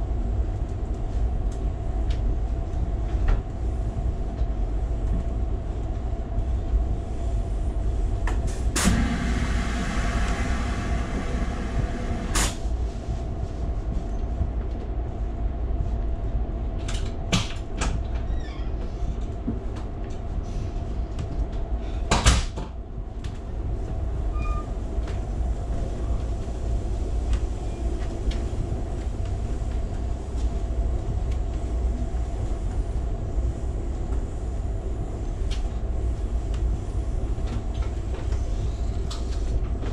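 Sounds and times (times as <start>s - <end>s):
train car rumbling along rails: 0.0s - 39.9s
hiss: 8.4s - 12.7s.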